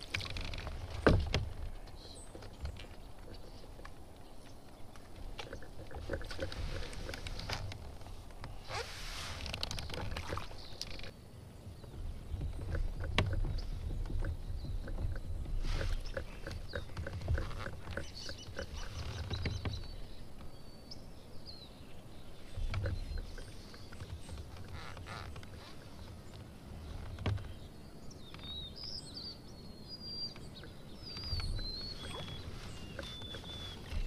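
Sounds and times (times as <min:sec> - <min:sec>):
boat clicks and knocks: 0:00.0 - 0:08.6, 0:11.8 - 0:20.6, 0:22.6 - 0:29.0
water rumbling against hull: 0:00.0 - 0:20.8, 0:22.3 - 0:34.0.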